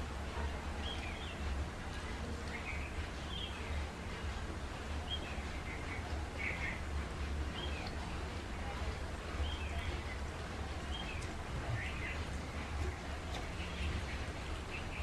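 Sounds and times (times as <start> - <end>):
small birds chirping: 0.8 - 3.9, 5.0 - 6.9, 7.5 - 8.2, 9.3 - 15.0.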